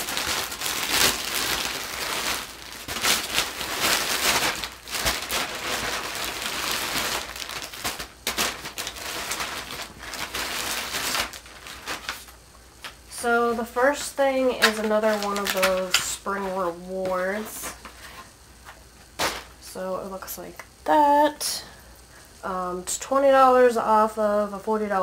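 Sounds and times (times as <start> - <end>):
plastic bags rustling: 0.0 - 19.7.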